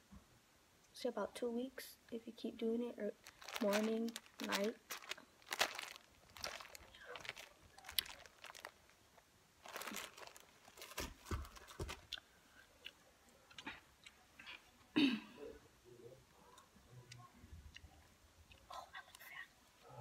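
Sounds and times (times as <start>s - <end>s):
plastic bottles rustling and knocking: 3.2s - 8.7s, 9.6s - 12.1s.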